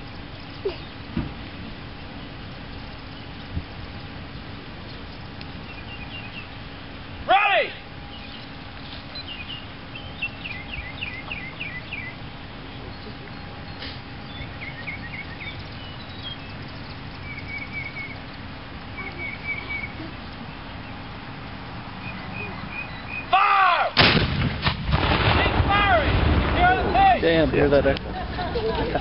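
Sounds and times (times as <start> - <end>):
birds chirping: 0.0 - 24.0, 25.1 - 29.0
cannon blast: 23.9 - 27.3.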